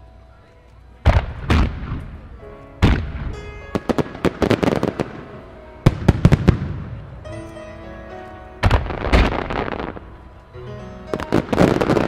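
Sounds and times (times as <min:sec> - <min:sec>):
fireworks sharp cracking: 0:01.0 - 0:07.1, 0:08.6 - 0:10.1, 0:11.1 - 0:12.0
fireworks deep boom: 0:01.0 - 0:07.2, 0:08.6 - 0:10.1.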